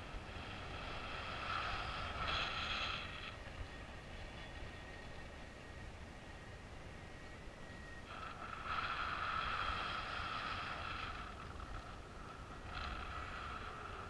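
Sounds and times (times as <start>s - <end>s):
low wind rumble on microphone: 0.0s - 14.0s.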